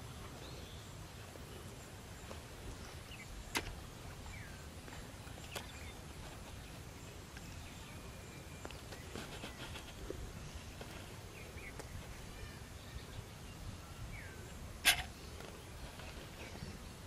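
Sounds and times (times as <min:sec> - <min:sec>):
faint bird chirps: 0:04.2 - 0:17.0.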